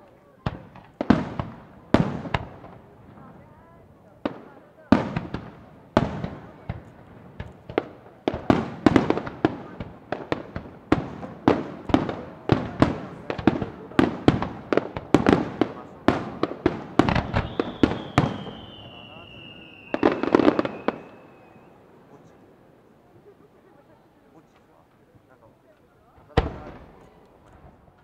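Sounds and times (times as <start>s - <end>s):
fireworks bursting with sharp bangs: 0.0s - 23.6s, 24.3s - 28.0s
high whistle falling in pitch: 17.4s - 20.0s.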